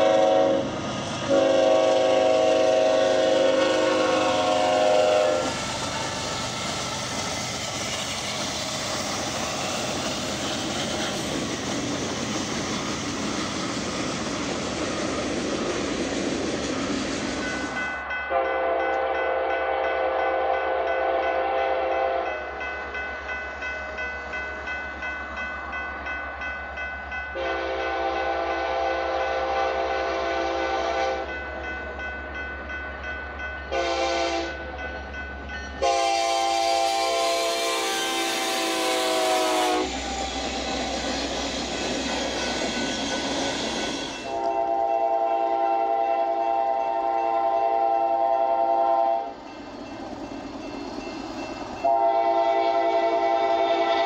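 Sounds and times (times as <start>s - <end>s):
train horn blasts: 0.0s - 5.6s, 18.3s - 22.4s, 27.4s - 31.3s, 33.7s - 34.6s, 35.8s - 40.7s, 44.1s - 49.3s, 51.8s - 54.0s
freight train passing: 0.0s - 54.0s.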